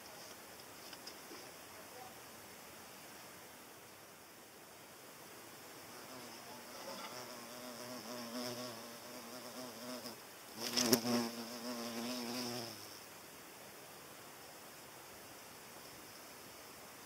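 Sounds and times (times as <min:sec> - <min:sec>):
hornet buzzing in flight: 0:05.9 - 0:13.0.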